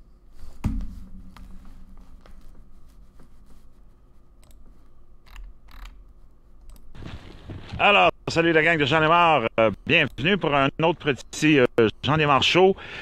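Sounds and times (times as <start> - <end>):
low steady hum: 0.0 - 13.0
sharp knock: 0.6 - 2.0
computer mouse clicks: 4.4 - 4.6, 5.3 - 6.0.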